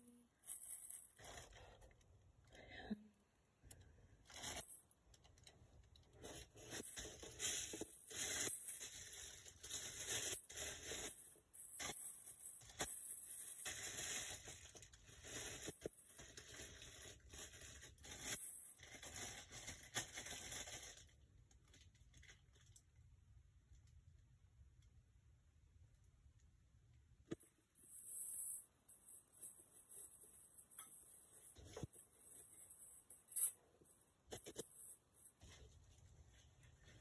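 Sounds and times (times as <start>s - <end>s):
packing material rustling: 0.4s - 2.0s, 4.2s - 5.5s, 6.1s - 22.7s, 27.8s - 37.0s.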